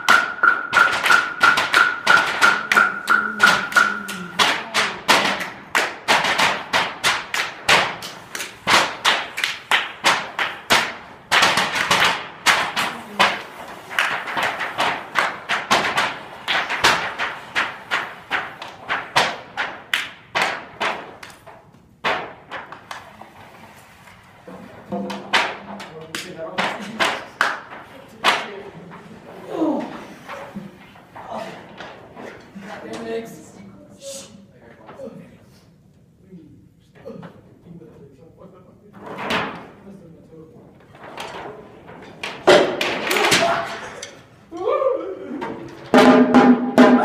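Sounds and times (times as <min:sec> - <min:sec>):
percussion taps on discs: 0:00.0 - 0:05.5
steady high tone: 0:02.5 - 0:04.4.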